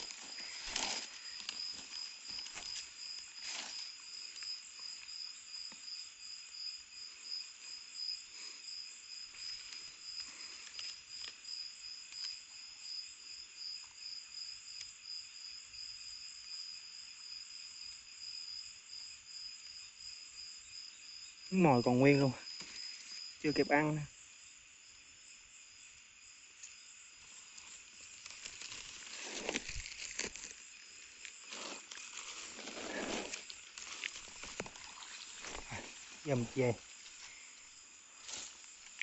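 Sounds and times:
net and sack rustling: 0:00.0 - 0:04.2, 0:27.4 - 0:37.4
insects trilling: 0:00.0 - 0:39.0.

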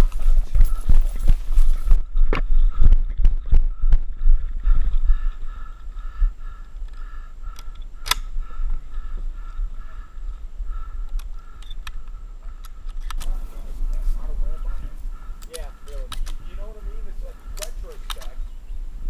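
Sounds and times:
shotgun loading metallic clicks: 0:12.8 - 0:13.4, 0:16.0 - 0:16.4, 0:17.6 - 0:18.4.

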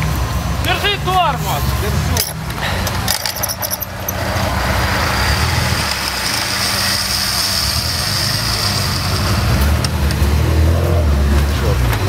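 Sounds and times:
high-pitched whine: 0:03.1 - 0:11.2
engine running at low revs: 0:03.8 - 0:12.0.

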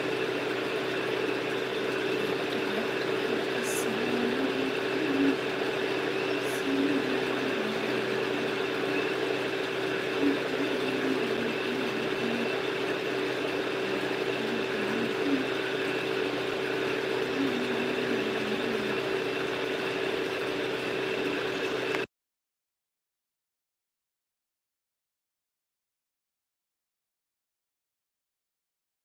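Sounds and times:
steady hum: 0:00.0 - 0:22.1.

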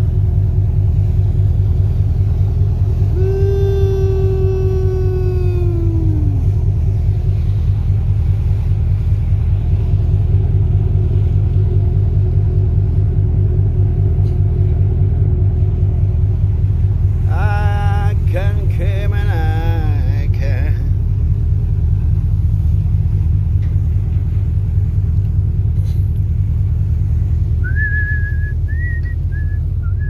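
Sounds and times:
ship engines rumbling: 0:00.0 - 0:30.0
person's voice: 0:17.3 - 0:20.9.

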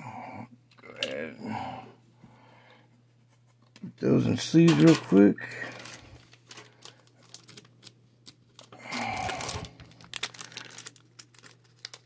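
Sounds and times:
plastic sleeves rustling: 0:03.7 - 0:12.0.

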